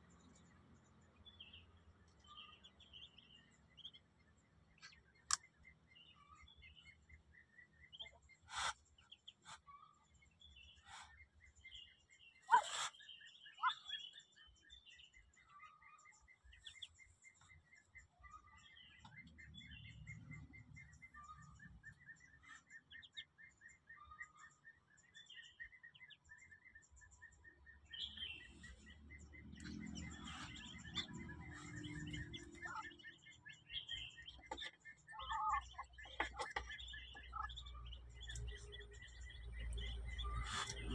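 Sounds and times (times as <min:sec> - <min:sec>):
ducklings peeping: 0:00.3 - 0:40.9.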